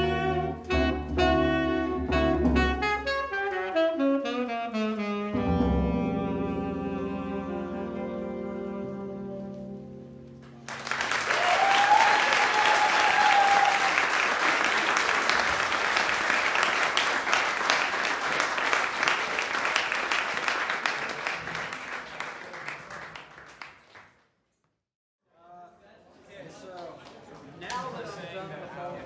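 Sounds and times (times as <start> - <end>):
band holding a chord: 5.3 - 10.9
audience applause: 10.6 - 24.2.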